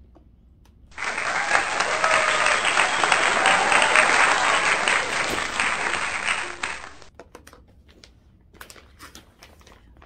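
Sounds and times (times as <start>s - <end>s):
dense clapping: 1.0s - 7.1s.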